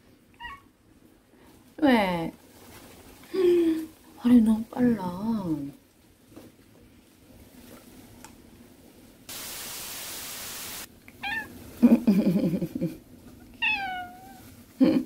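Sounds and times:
cat chirp: 0:00.4 - 0:00.7, 0:11.2 - 0:11.5, 0:13.6 - 0:14.4
cat meowing: 0:00.4 - 0:00.7, 0:11.2 - 0:11.6, 0:13.5 - 0:14.5
cat trilling: 0:11.2 - 0:11.6, 0:13.6 - 0:14.5.

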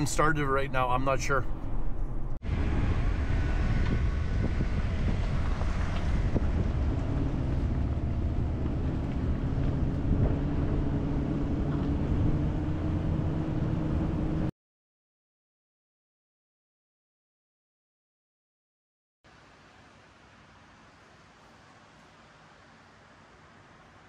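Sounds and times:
road rumble: 0:00.0 - 0:14.5, 0:19.3 - 0:24.0
vehicle engine drone: 0:00.0 - 0:14.5.

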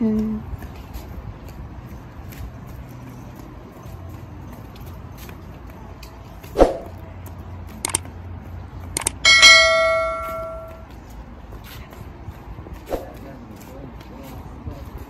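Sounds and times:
sharp mouse clicks: 0:07.8 - 0:08.1, 0:09.0 - 0:09.2
notification bell ding: 0:09.2 - 0:10.8.

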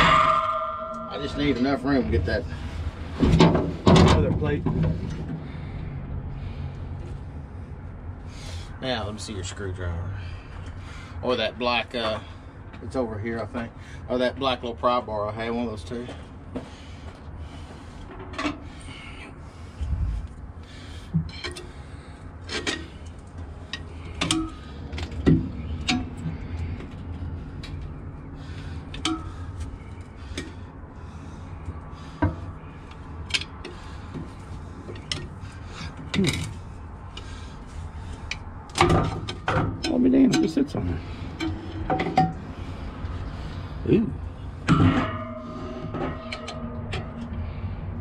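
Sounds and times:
steady low hum: 0:00.0 - 0:48.0
metal tools clinking and scraping: 0:44.6 - 0:47.4.

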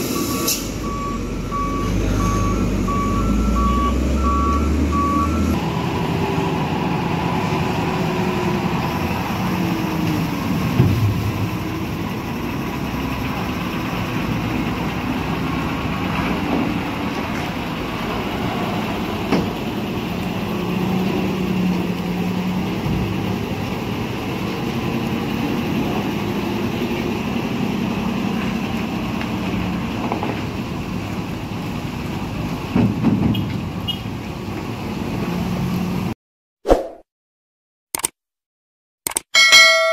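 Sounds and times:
diesel truck engines: 0:00.0 - 0:36.2.

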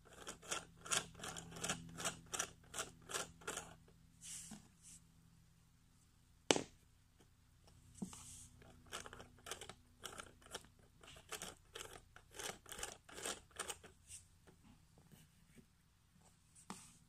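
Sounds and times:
plastic gears clicking and rattling: 0:00.0 - 0:03.9, 0:08.6 - 0:14.6.

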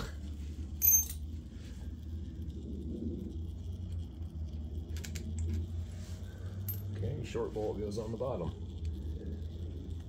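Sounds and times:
steady low hum: 0:00.0 - 0:10.0
metal part clinking: 0:00.8 - 0:01.3, 0:06.6 - 0:07.0.

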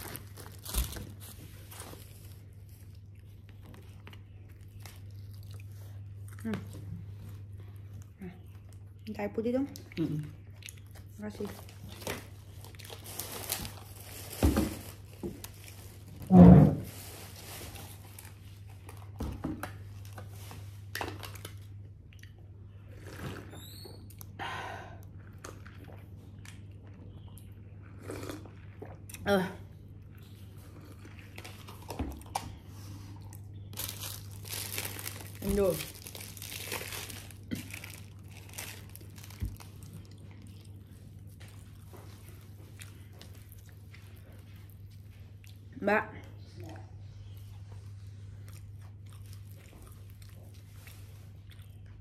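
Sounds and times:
paper wrapper crinkling: 0:00.0 - 0:03.2, 0:11.5 - 0:16.3, 0:33.7 - 0:40.8
chewing and biting food: 0:00.0 - 0:14.0, 0:29.9 - 0:45.7, 0:48.2 - 0:52.0
low electrical hum: 0:00.0 - 0:52.0
person eating and drinking: 0:25.0 - 0:45.7.

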